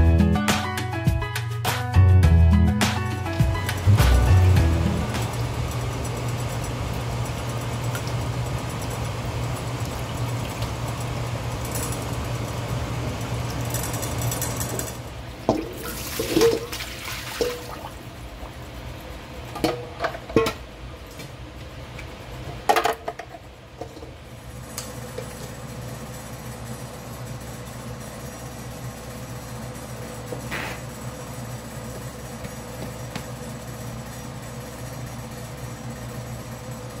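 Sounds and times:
low hum: 2.2s - 16.7s
water sloshing in a pot: 15.3s - 18.2s.

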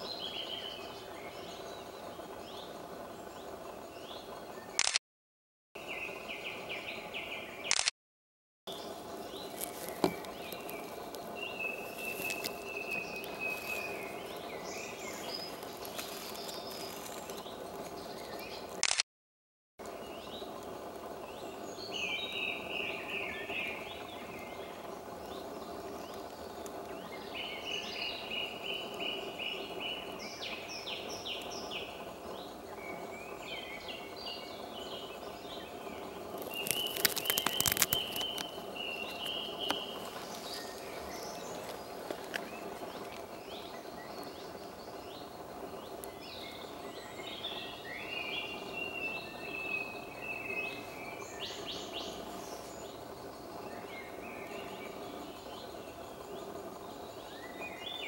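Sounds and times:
woodland birds singing: 0.0s - 4.9s, 5.8s - 7.9s, 8.7s - 19.0s, 19.8s - 58.0s
sharp crackling clicks: 4.7s - 5.0s, 7.7s - 7.9s, 9.4s - 14.4s, 15.1s - 19.0s, 36.3s - 43.8s, 45.9s - 46.6s
steady background noise: 8.7s - 19.0s, 19.8s - 58.0s.

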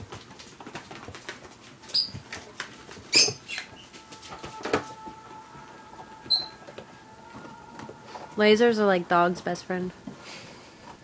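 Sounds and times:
puppies pattering and scrambling: 0.0s - 8.5s
puppy squeak: 1.9s - 2.2s, 3.1s - 3.8s, 6.3s - 6.6s.

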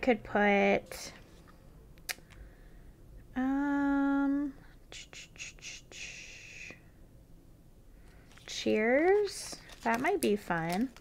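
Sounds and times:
woman humming: 3.3s - 6.8s
soft handling rustle: 8.0s - 11.0s.

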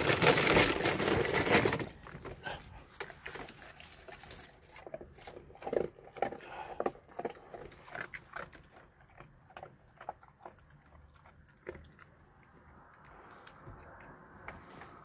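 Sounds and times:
dog crunching dry kibble: 0.0s - 15.0s.

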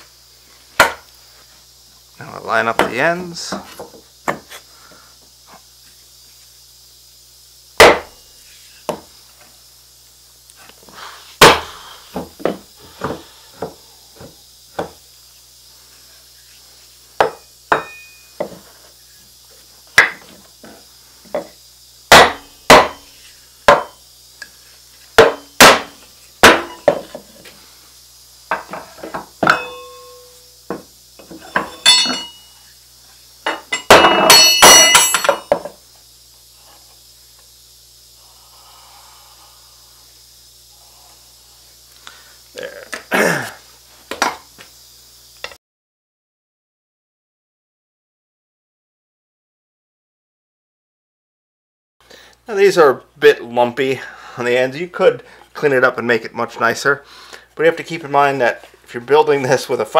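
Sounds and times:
wooden boards knocking on workbench: 0.8s - 1.0s, 2.8s - 4.5s, 7.8s - 8.1s, 8.9s - 9.1s, 11.4s - 15.0s, 17.2s - 18.6s, 20.0s - 20.4s, 22.1s - 23.0s, 23.7s - 23.9s, 25.2s - 27.2s, 28.5s - 29.8s, 30.7s - 32.2s.

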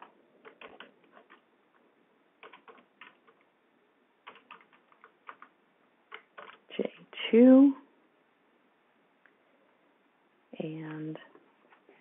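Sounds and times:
computer keyboard typing: 0.0s - 1.4s, 2.4s - 3.5s, 4.2s - 5.5s, 6.1s - 6.7s.

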